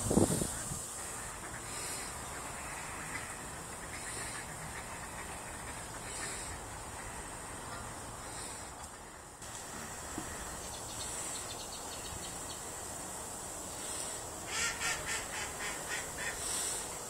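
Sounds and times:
bird calling: 1.0 - 9.1.

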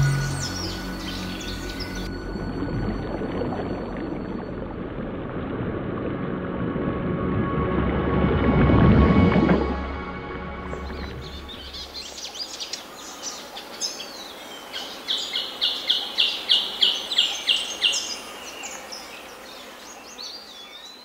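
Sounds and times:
birds chirping and whistling: 0.0 - 2.1
bird fast sharp high notes: 0.0 - 2.2.

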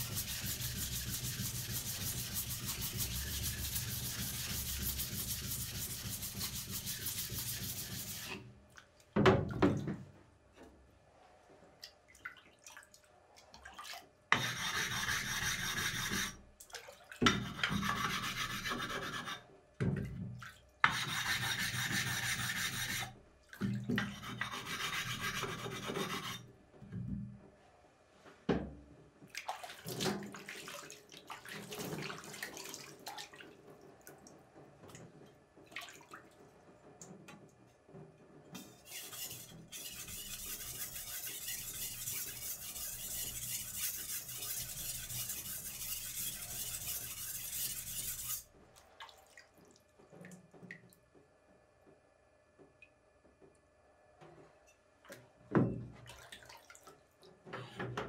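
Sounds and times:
knife rubbing on whetstone: 0.0 - 8.3, 17.8 - 19.4, 38.6 - 48.4.

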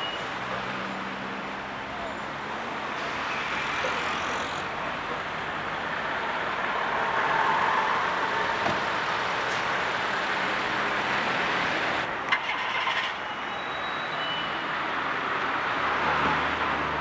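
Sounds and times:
cars driving past: 0.0 - 13.2, 14.6 - 17.0.

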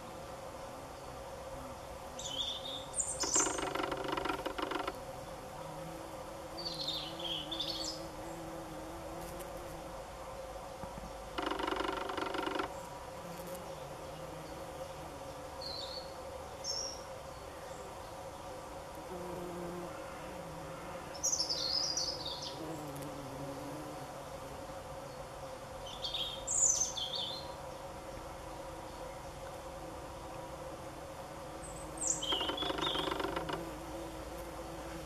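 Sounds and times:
bumblebees buzzing: 0.0 - 35.0
robin singing: 31.7 - 33.2.

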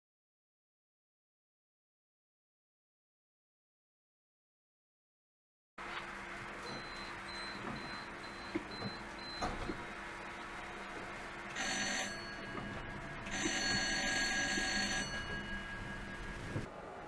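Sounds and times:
tram warning bell ringing: 10.3 - 16.7.

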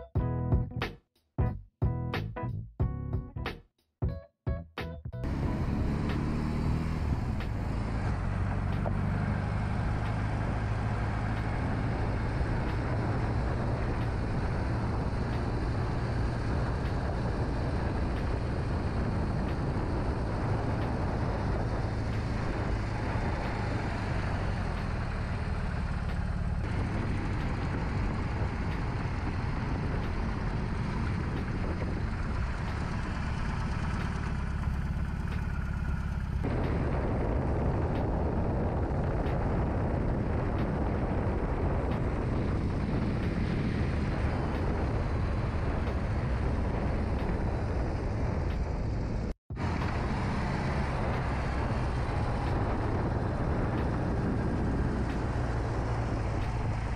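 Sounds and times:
motorcycle engine running: 5.2 - 56.9
wind and road noise: 5.2 - 56.9.

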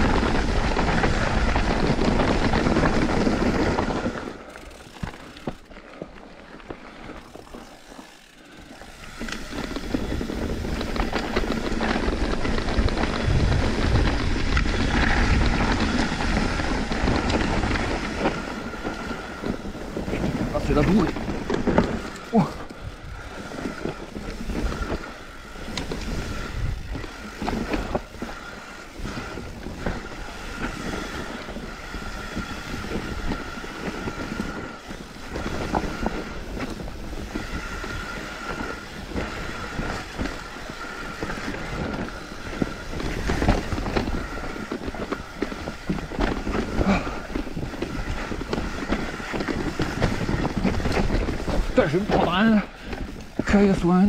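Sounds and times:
bike chain and frame clatter: 0.0 - 54.0
tyre and wind noise: 0.0 - 54.0.

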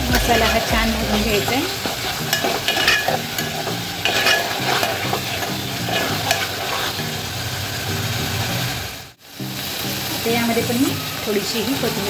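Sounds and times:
paste sizzling in oil: 0.0 - 12.0
spoon scraping metal pot: 0.1 - 7.2.

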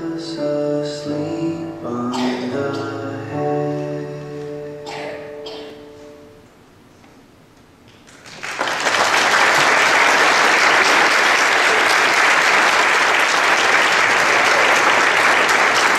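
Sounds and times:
audience applause: 8.0 - 15.9.

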